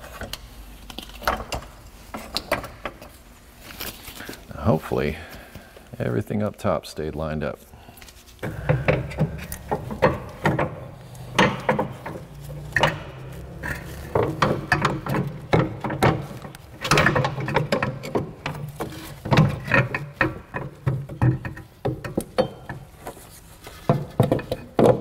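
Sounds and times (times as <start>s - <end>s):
metal parts knocking and scraping: 8.4s - 25.0s.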